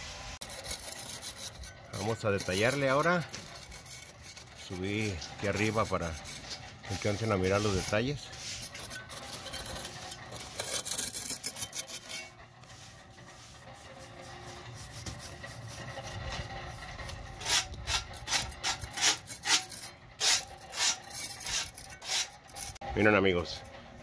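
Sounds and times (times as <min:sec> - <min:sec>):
trowel scraping cement: 0:00.0 - 0:22.8
paintbrush sweeping surface: 0:08.3 - 0:08.6, 0:12.7 - 0:15.3.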